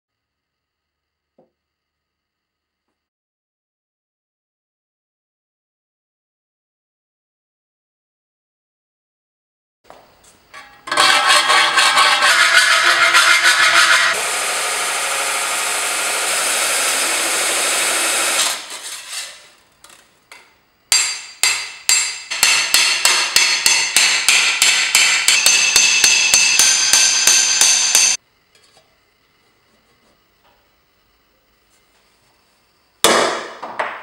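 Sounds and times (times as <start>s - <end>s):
belt grinder grinding steel: 10.6s - 19.5s
hammer ringing on sheet steel: 20.9s - 28.2s.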